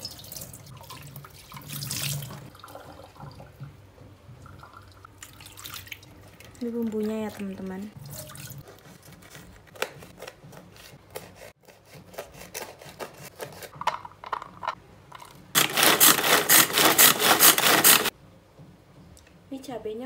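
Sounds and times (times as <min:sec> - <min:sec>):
manual food chopper whirring: 0:15.6 - 0:18.1.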